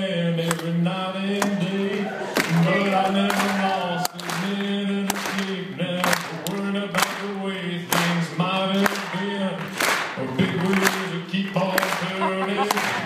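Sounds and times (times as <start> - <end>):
man singing into a microphone: 0.0 - 13.0
sharp clap-like beat: 3.3 - 7.3, 7.9 - 13.0.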